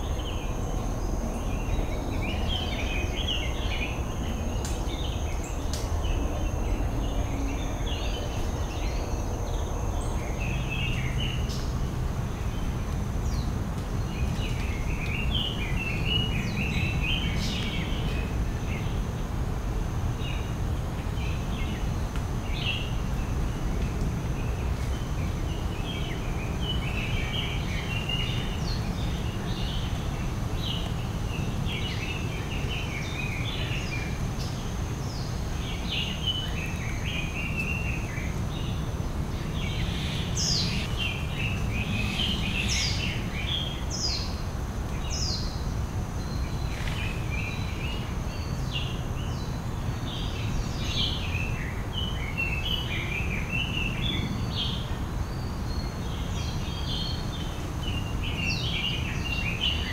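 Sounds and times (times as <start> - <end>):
birds chirping: 20.1 - 59.9.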